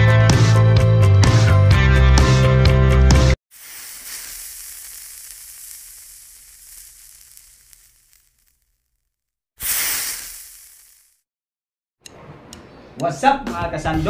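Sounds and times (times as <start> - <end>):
hissing noise: 3.5 - 11.2.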